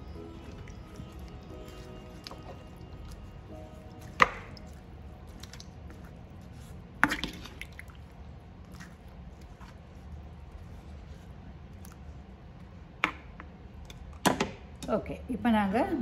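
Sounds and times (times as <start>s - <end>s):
wet stirring: 0.0s - 12.0s.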